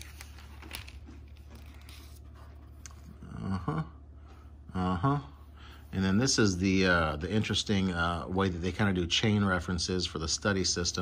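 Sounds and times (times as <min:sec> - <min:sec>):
paper pages rustling and turning: 0:00.0 - 0:03.1
steady low hum: 0:00.0 - 0:11.0.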